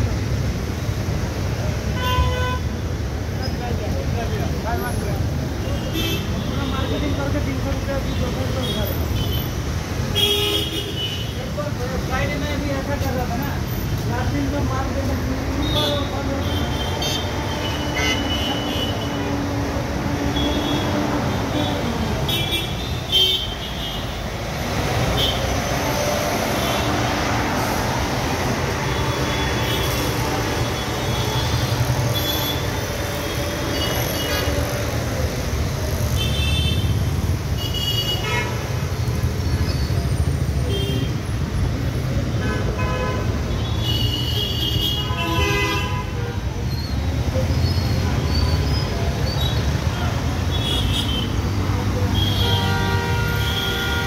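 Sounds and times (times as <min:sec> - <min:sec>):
road traffic rumble: 0:00.0 - 0:54.0
vehicle horns tooting: 0:15.6 - 0:24.1, 0:42.4 - 0:46.4, 0:50.5 - 0:54.0.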